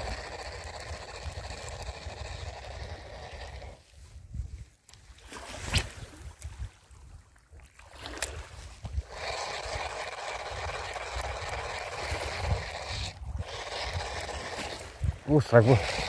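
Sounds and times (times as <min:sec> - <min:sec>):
fishing reel whirring: 0:00.0 - 0:03.8, 0:09.0 - 0:16.0.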